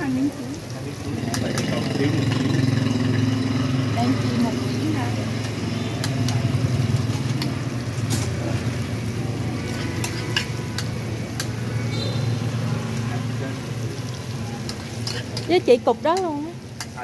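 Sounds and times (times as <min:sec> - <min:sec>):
food deep-frying in oil: 0:00.0 - 0:17.0
wire basket clinking on wok: 0:09.6 - 0:11.6, 0:14.6 - 0:17.0.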